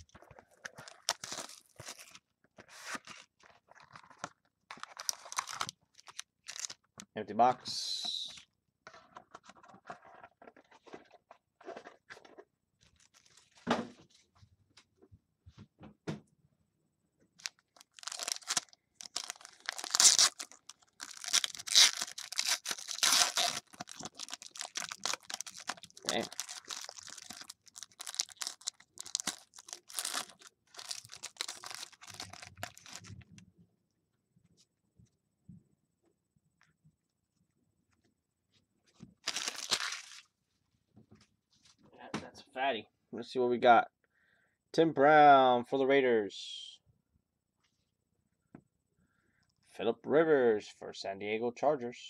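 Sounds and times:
foil wrapper crinkling: 0.7 - 6.8, 17.4 - 33.1, 39.2 - 40.3.

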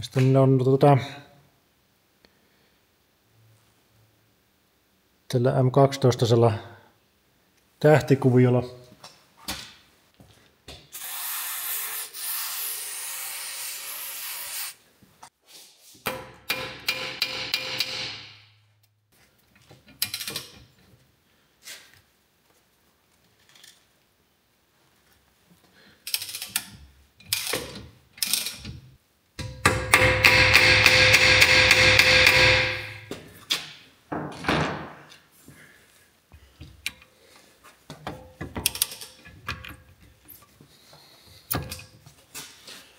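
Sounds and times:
wrench clicks and metal knocks: 16.1 - 18.4, 19.6 - 20.7, 29.4 - 33.0, 38.0 - 40.0.

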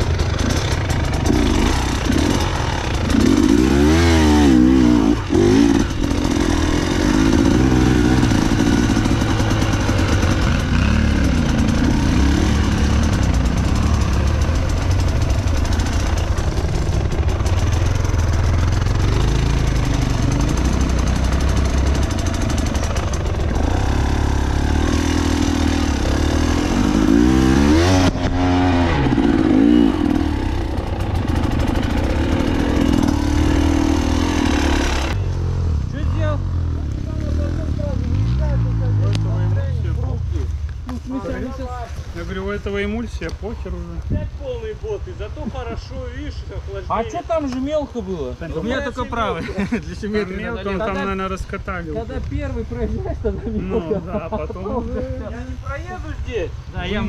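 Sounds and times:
motorcycle engine revving: 0.0 - 41.8.

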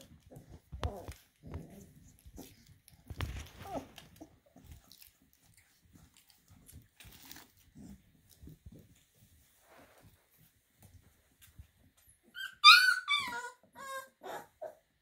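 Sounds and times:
puppies chewing: 0.0 - 9.1
puppy whimpers: 3.4 - 4.4, 12.4 - 14.9.

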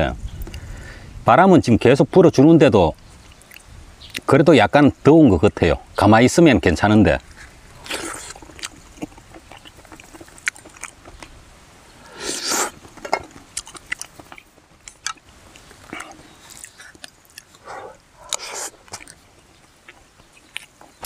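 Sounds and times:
person eating and chewing: 3.3 - 4.2, 7.4 - 11.3, 12.0 - 21.0.

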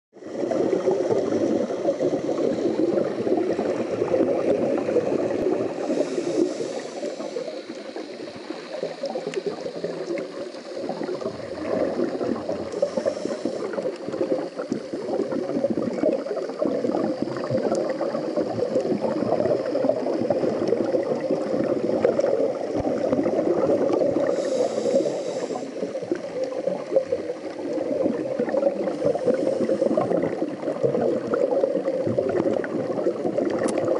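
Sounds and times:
bubbling exhaled air underwater: 0.2 - 33.9
hiss of inhaled breath: 0.4 - 3.6, 4.8 - 15.3, 23.8 - 27.5, 28.4 - 30.7.

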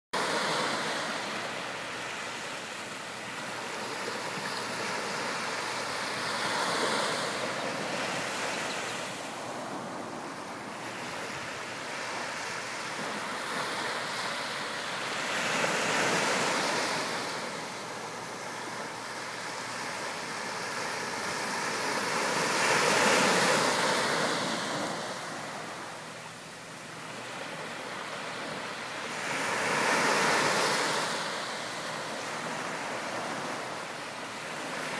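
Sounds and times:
small waves washing on beach: 0.2 - 34.9.

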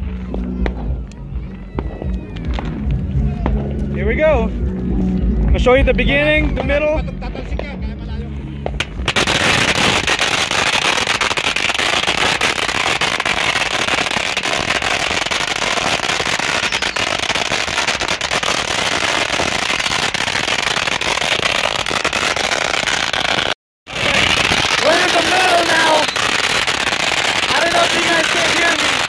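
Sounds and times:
firecrackers crackling: 0.0 - 7.8, 8.5 - 29.0.

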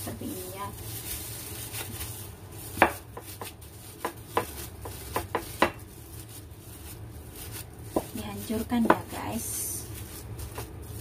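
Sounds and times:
pestle pounding in a glass bowl: 2.8 - 5.8.

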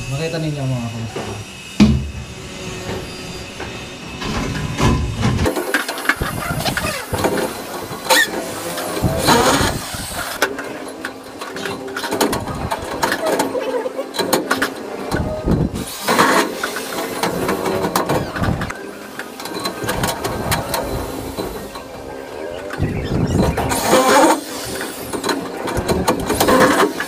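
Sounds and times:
power drill running: 0.0 - 10.4.

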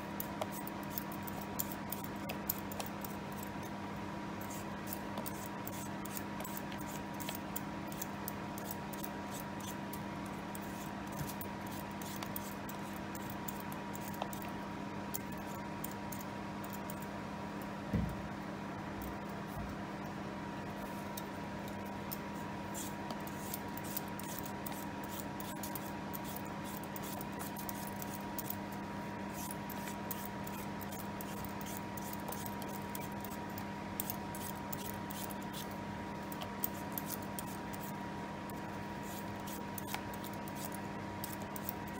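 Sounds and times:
steady background hum: 0.0 - 41.9
vegetable peeler scraping potato: 4.4 - 16.9, 21.8 - 41.9
dull thump: 17.9 - 18.2.

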